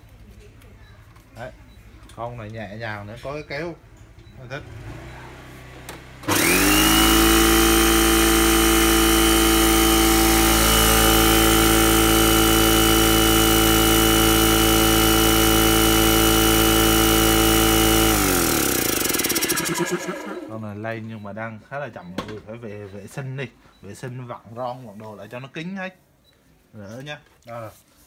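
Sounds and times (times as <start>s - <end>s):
electric air compressor running: 6.2s - 20.6s.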